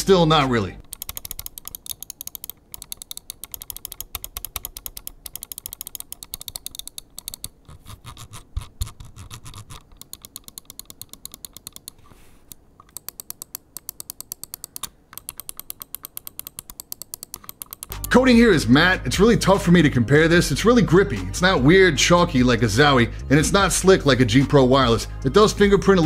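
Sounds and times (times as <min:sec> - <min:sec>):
mouse buttons clicking: 0:00.8 - 0:18.2.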